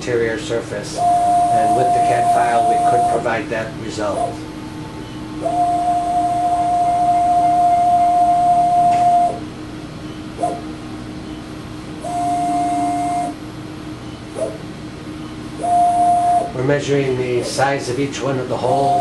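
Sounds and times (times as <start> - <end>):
motorized stage whining: 0.0 - 19.0.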